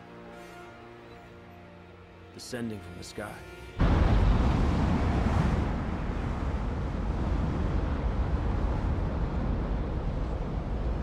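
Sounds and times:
low rumbling rush of wind: 3.8s - 11.0s
wind buffeting the microphone: 3.8s - 11.0s.

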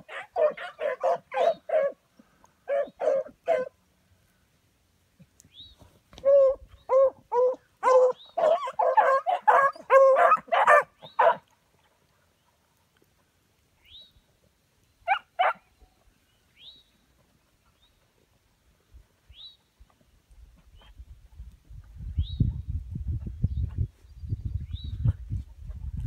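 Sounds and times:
dogs barking and baying: 0.0s - 2.0s, 2.6s - 3.7s, 6.2s - 11.5s.

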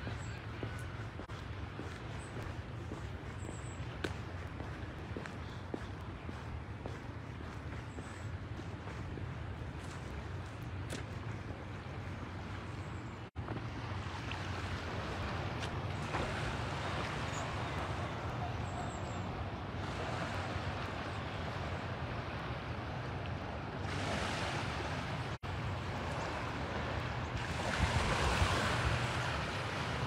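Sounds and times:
wind gusting over microphone: 23.9s - 30.0s.

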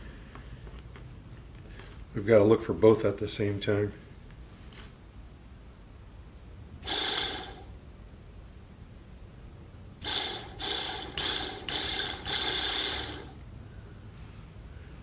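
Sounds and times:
pump motor spinning in spurts: 6.8s - 7.7s, 10.0s - 13.4s.

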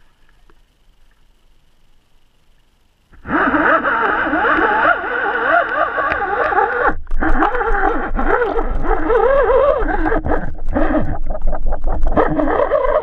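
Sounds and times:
fishing line warbling whine: 3.2s - 13.0s.

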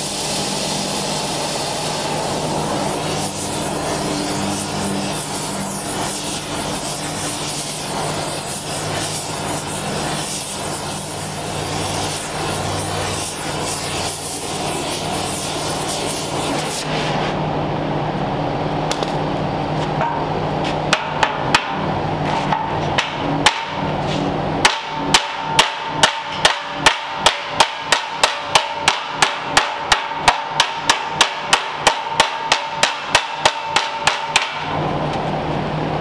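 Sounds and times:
steady hum: 0.0s - 36.0s
hammer striking metal: 20.9s - 24.0s, 24.6s - 34.8s.

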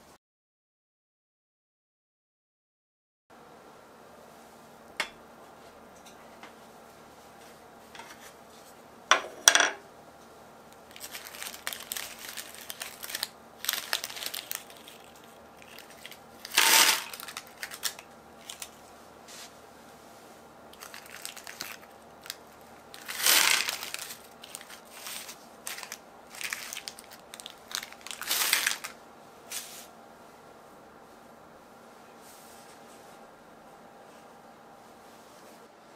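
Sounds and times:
rustling and scraping: 7.2s - 8.8s, 10.9s - 22.4s, 23.0s - 27.0s, 29.5s - 29.9s, 32.2s - 33.2s.

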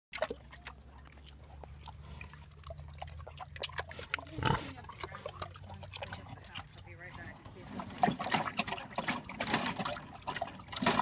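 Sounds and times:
pig chewing wetly: 0.1s - 11.0s
loud pig noise: 2.0s - 6.1s.

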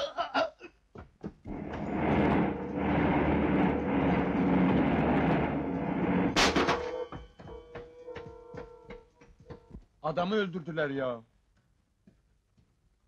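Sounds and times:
road and tyre noise: 1.5s - 6.8s
car engine under load: 1.5s - 6.9s
sharp bang: 1.5s - 7.2s.

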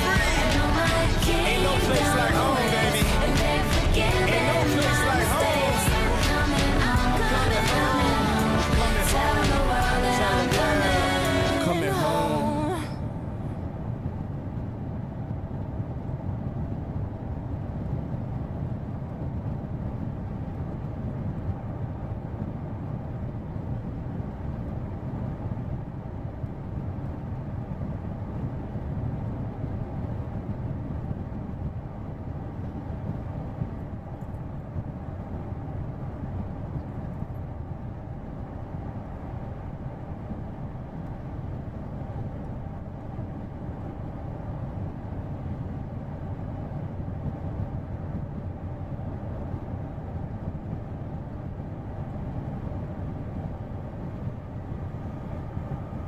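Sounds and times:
car cabin road and engine rumble: 0.0s - 13.4s.

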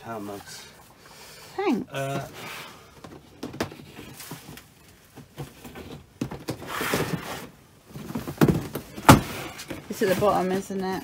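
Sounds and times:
items rustling: 2.0s - 11.0s
plastic boxes knocking: 7.9s - 10.5s.

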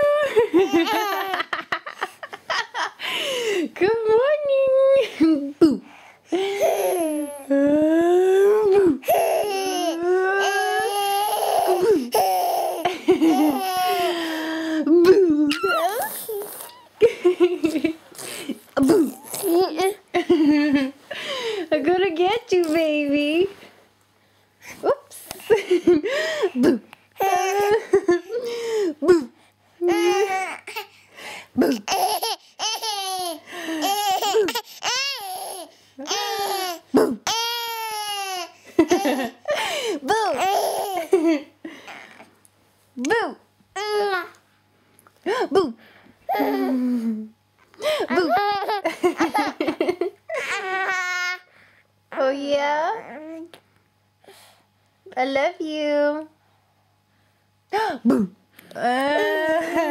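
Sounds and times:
toddler laughing: 0.0s - 2.8s, 9.2s - 14.4s, 15.5s - 17.9s, 29.9s - 30.9s, 31.6s - 39.4s, 48.1s - 51.4s.

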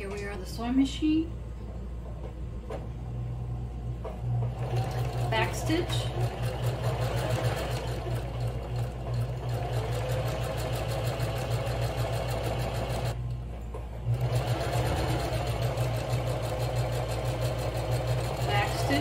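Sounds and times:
sewing machine stitching: 4.4s - 13.2s, 14.1s - 19.0s.

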